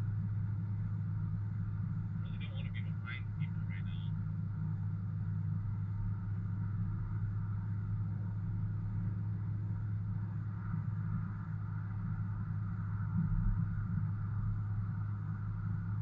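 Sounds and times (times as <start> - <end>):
vehicle engine and road rumble: 0.0 - 16.0.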